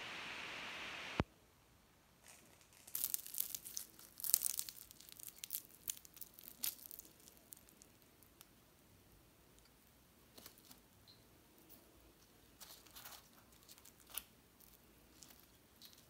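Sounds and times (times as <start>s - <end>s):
pastry crackling and crunching: 2.2s - 8.6s, 10.3s - 10.8s, 11.6s - 16.0s.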